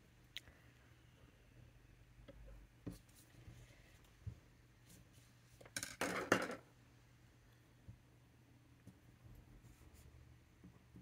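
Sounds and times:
small objects knocking on desktop: 5.7 - 6.6.

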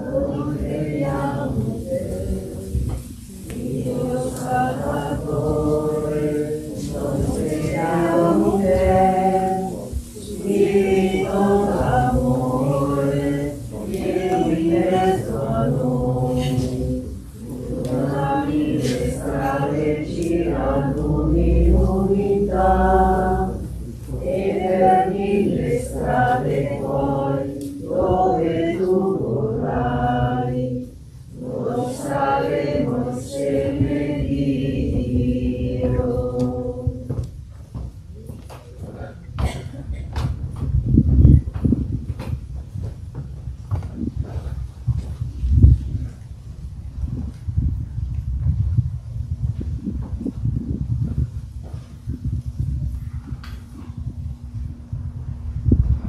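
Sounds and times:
choir singing a hymn: 0.0 - 37.3.

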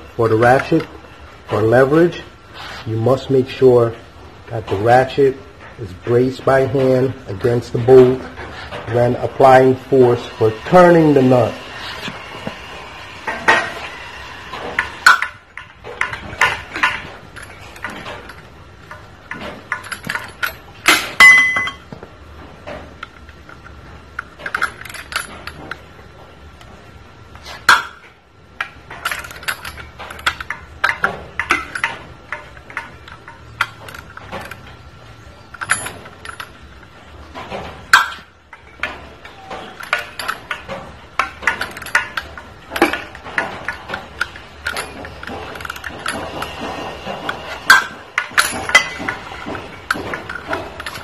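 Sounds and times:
steel tools clinking on metal: 14.8 - 21.9, 37.4 - 51.0.

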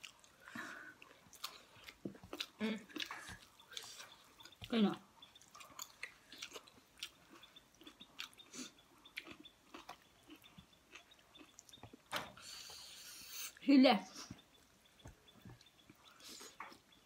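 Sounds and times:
chewing and biting food: 0.0 - 13.3.

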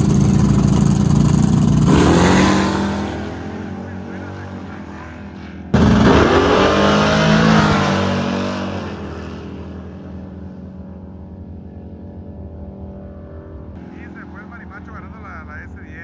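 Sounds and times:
drag-race cars accelerating: 0.0 - 16.0.

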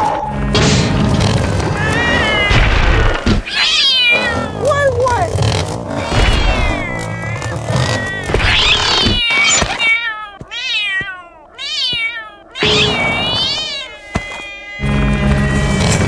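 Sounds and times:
cartoon cat meowing: 6.1 - 16.0.

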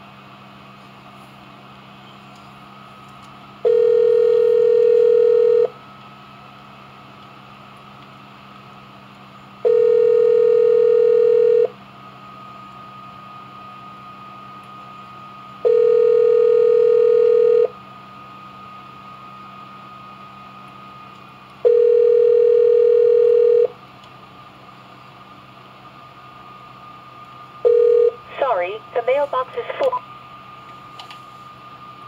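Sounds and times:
telephone ringback tone: 3.6 - 5.7, 9.6 - 11.7, 15.6 - 17.7, 21.6 - 23.7, 27.6 - 28.2.

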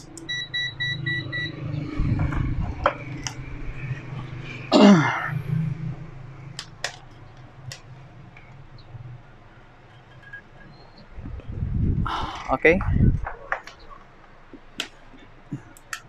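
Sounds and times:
multimeter beeps: 0.2 - 1.8.

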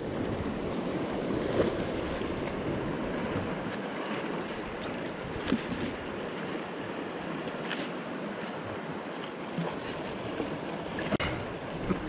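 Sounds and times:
wind noise on microphone: 0.0 - 3.8
water washing around kayak: 0.0 - 12.0.

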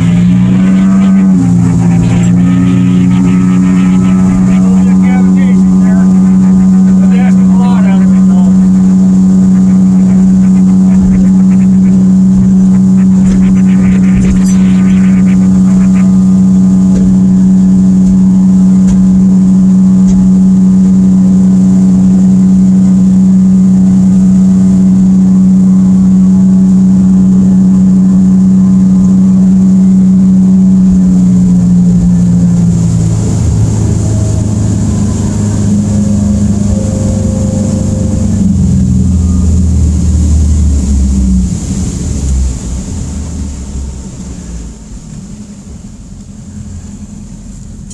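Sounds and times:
outboard motor running at speed: 0.0 - 47.9.

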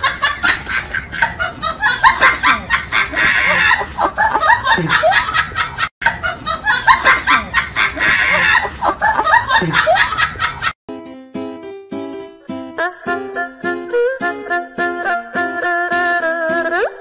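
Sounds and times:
people giggling: 0.0 - 10.8.

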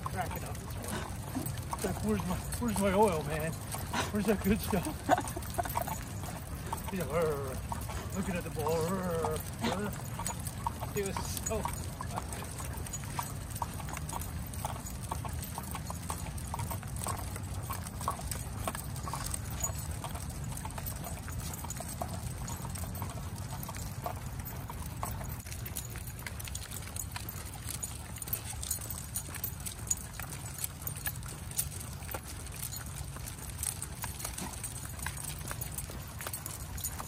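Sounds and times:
dog claws clicking on asphalt: 0.0 - 37.0.

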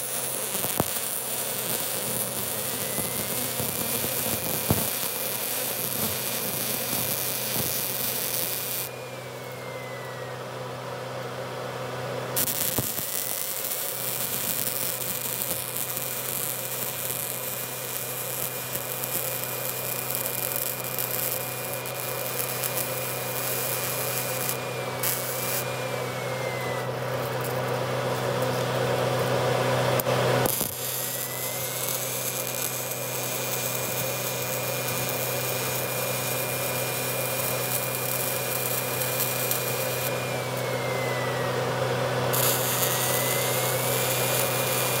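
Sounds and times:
welding arc crackling hiss: 0.0 - 9.6, 12.4 - 29.4, 30.0 - 40.7, 42.3 - 45.0
welding machine hum and whine: 0.0 - 45.0.

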